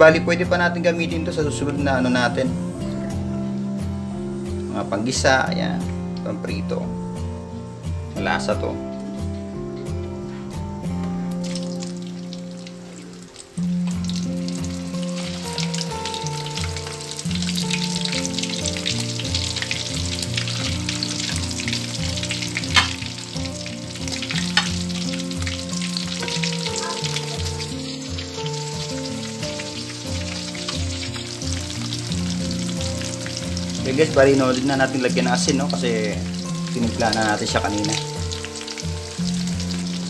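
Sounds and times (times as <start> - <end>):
deep-frying sizzle and crackle: 0.0 - 40.0
music with held notes: 0.0 - 40.0
oil spattering pops: 22.4 - 26.4.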